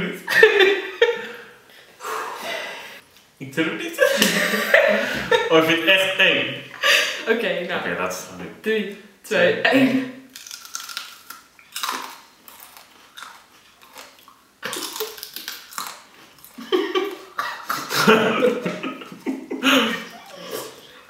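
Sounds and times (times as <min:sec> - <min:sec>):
people giggling and laughing: 0:03.9 - 0:05.6, 0:16.6 - 0:21.0
crunching and chewing peppers: 0:10.3 - 0:17.4.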